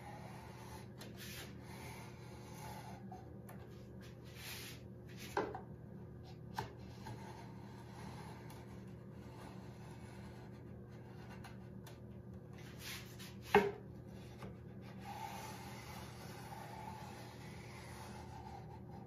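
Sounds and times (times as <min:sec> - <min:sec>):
workshop hum: 0:00.0 - 0:19.0
short scrape: 0:00.2 - 0:03.0, 0:04.3 - 0:05.4, 0:12.6 - 0:13.5.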